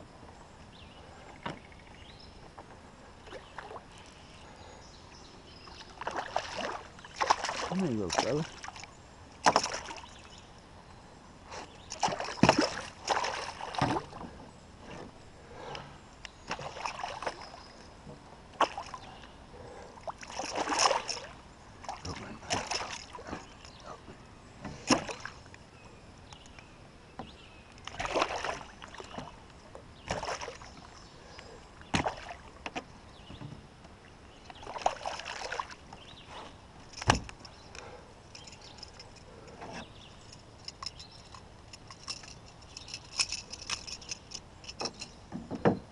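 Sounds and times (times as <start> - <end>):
knocks against canoe: 12.0 - 15.2, 37.0 - 37.3, 44.8 - 45.9.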